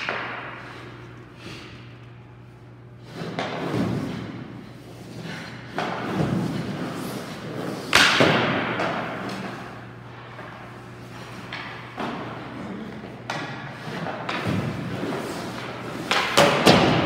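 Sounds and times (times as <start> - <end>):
puck hit crack: 0.0 - 0.6, 7.8 - 9.5, 16.0 - 17.0
skates scraping on ice: 3.0 - 17.0.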